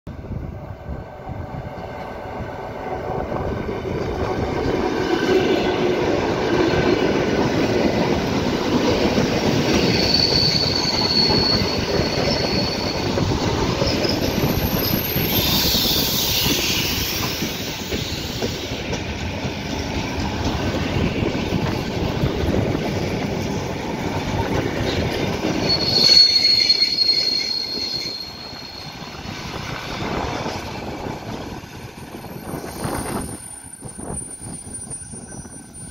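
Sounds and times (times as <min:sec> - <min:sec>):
train wheels rumbling on rails: 0:00.1 - 0:35.9
high train squeal: 0:00.3 - 0:35.9.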